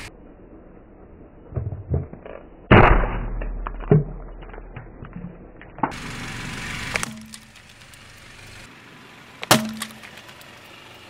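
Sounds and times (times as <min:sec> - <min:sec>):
car tyre crushing plastic cups: 0:09.4 - 0:10.5.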